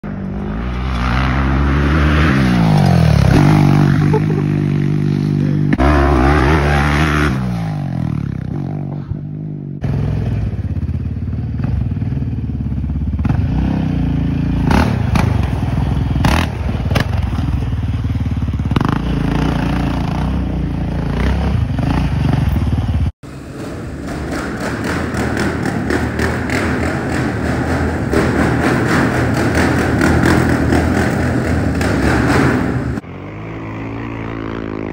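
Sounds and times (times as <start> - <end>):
atv engines revving: 0.0 - 34.9
quad engine running hard indoors: 21.2 - 33.0.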